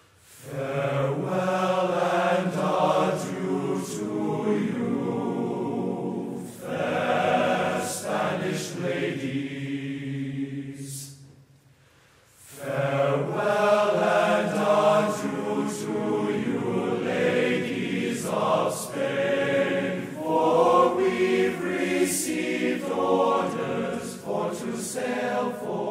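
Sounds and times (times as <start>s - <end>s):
choir singing a slow shanty: 0.0s - 25.9s.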